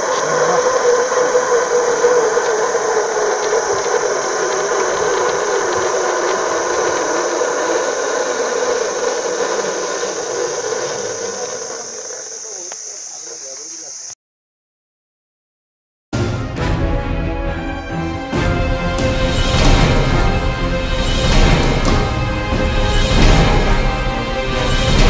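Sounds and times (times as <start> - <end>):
motor-driven cable winch running: 0.0 - 12.0.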